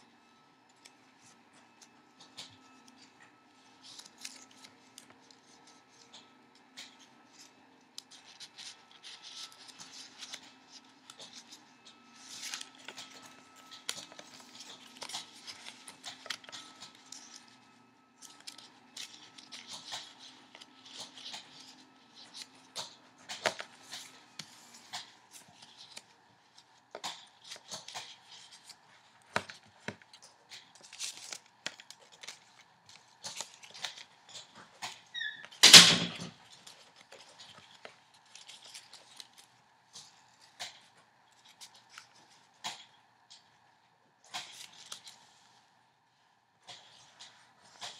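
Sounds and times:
paper rustling and crinkling: 0:00.3 - 0:43.6, 0:44.2 - 0:45.8, 0:46.6 - 0:47.9
loud paper crackle: 0:02.3 - 0:17.6, 0:18.2 - 0:40.1.

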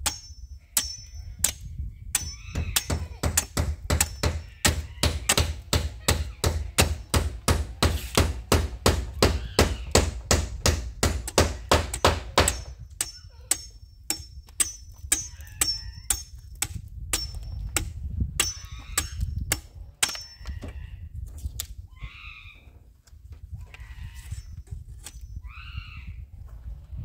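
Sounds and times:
hand tool striking wood: 0:00.0 - 0:20.3.

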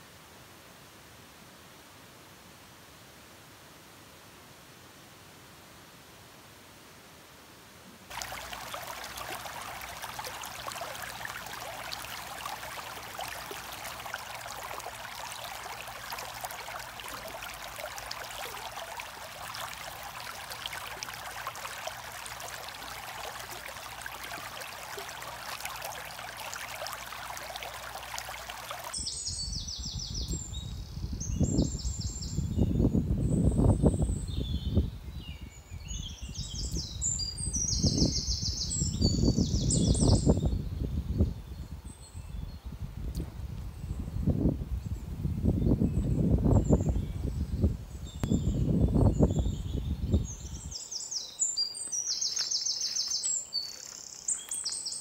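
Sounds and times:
birds chirping: 0:08.1 - 0:30.3
wind buffeting microphone: 0:29.4 - 0:35.5, 0:37.6 - 0:50.7.

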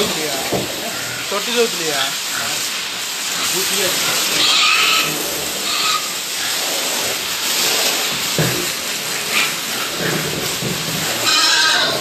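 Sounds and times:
steady hiss: 0:00.0 - 0:12.0
pigs squealing: 0:00.8 - 0:08.1, 0:11.0 - 0:12.0.

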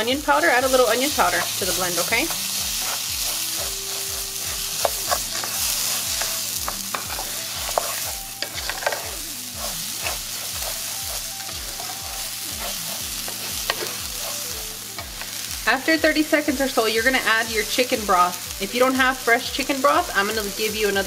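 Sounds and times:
rice and onion sizzling in oil: 0:00.0 - 0:21.0
wooden spoon scraping pan: 0:00.6 - 0:15.3.

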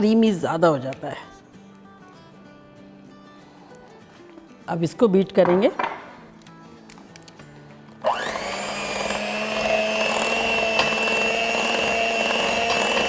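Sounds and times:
electric hand mixer whirring: 0:08.0 - 0:13.0.

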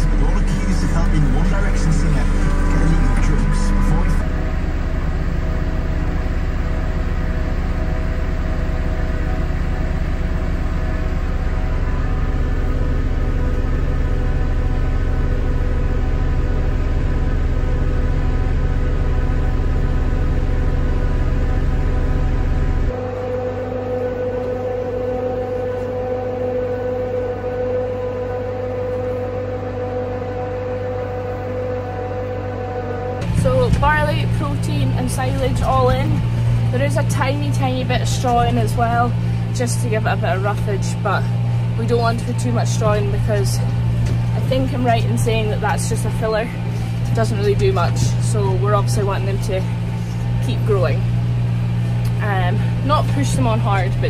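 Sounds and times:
feed mixer machine hum: 0:00.0 - 0:54.0
tractor engine droning: 0:00.0 - 0:54.0.

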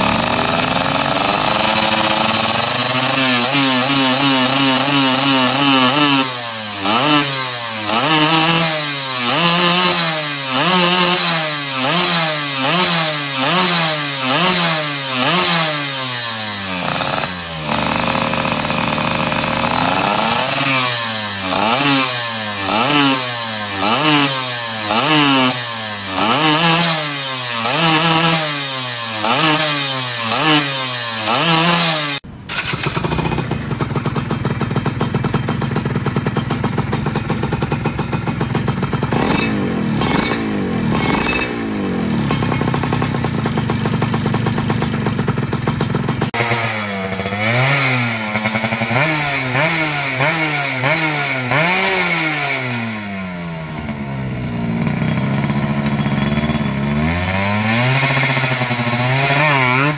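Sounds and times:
two-stroke engine revving: 0:00.0 - 0:59.9.

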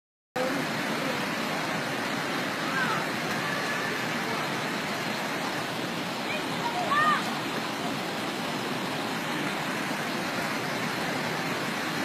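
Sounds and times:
floodwater rushing: 0:00.4 - 0:12.0
faint voices: 0:02.5 - 0:05.3.

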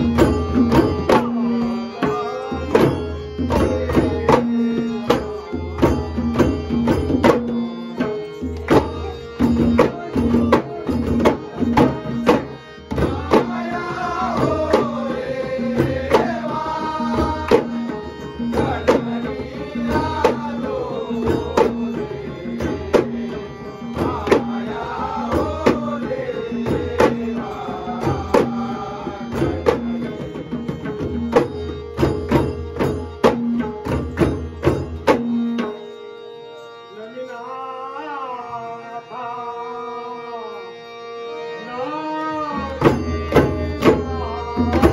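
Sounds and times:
harmonium held notes: 0:00.0 - 0:44.9
clay-pot drums beaten fast: 0:09.4 - 0:23.3, 0:24.0 - 0:35.6.

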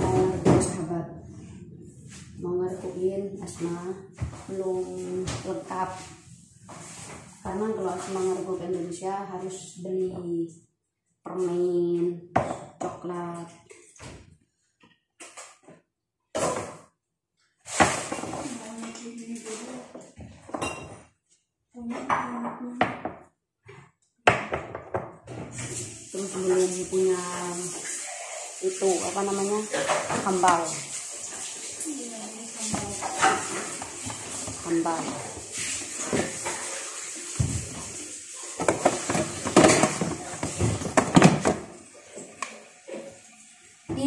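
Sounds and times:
dishes and utensils clattering: 0:17.7 - 0:19.0, 0:19.8 - 0:21.2, 0:27.7 - 0:31.8, 0:32.7 - 0:43.2.

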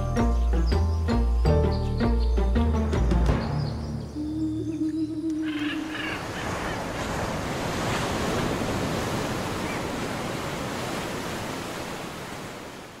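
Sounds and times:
waves churning and breaking: 0:05.6 - 0:13.0.

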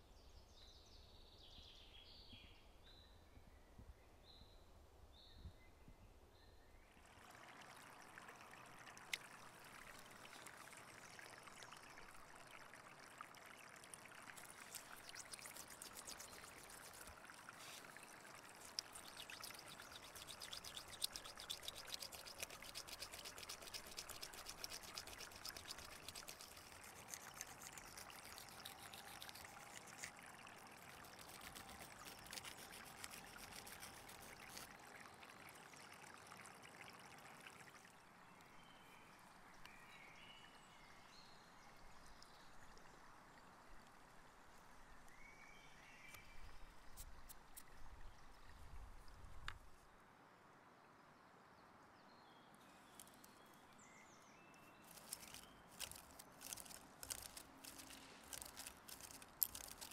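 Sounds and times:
bone grinding against stone: 0:31.0 - 0:34.7, 0:54.9 - 0:59.9.

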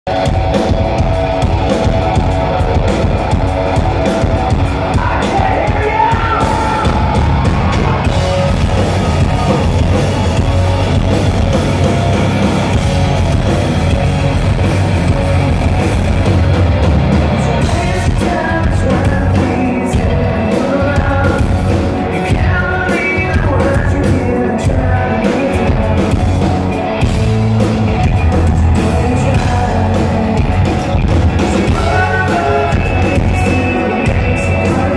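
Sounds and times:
live rock band playing: 0:00.0 - 0:34.9
person singing: 0:03.8 - 0:10.5, 0:17.2 - 0:34.9.

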